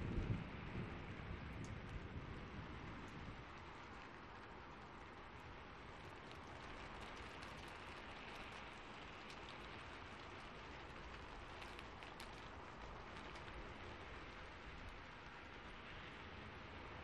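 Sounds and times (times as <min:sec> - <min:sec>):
faint rain hiss: 0:00.0 - 0:17.0
small sharp ticks: 0:05.5 - 0:15.6.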